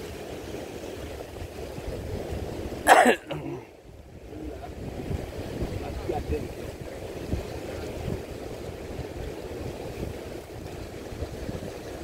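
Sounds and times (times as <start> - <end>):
wind noise on microphone: 0.0 - 12.0
person coughing: 2.9 - 3.6.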